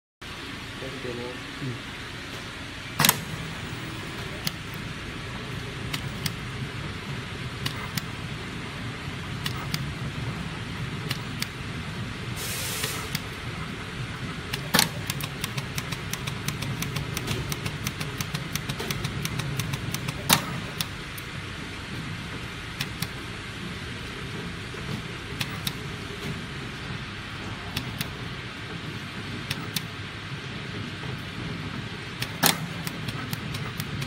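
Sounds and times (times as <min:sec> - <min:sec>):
machine humming: 0:00.2 - 0:34.0
small machine clicks: 0:03.0 - 0:03.3, 0:05.9 - 0:06.4, 0:07.6 - 0:08.1, 0:09.4 - 0:09.9, 0:11.0 - 0:11.6, 0:14.5 - 0:21.3, 0:22.8 - 0:23.2, 0:25.4 - 0:25.8, 0:29.5 - 0:29.9, 0:32.2 - 0:34.0
short hiss: 0:12.4 - 0:13.2.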